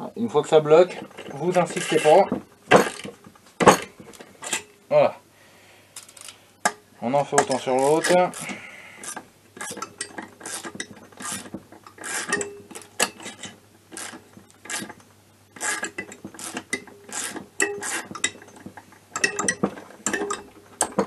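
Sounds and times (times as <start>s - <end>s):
ratchet clicking: 6.0s - 6.4s, 7.8s - 13.4s, 14.0s - 15.0s, 15.6s - 18.4s.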